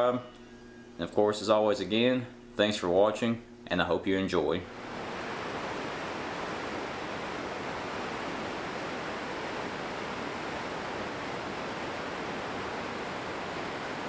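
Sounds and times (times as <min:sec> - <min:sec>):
whitewater rushing over rapids: 0:04.8 - 0:14.0.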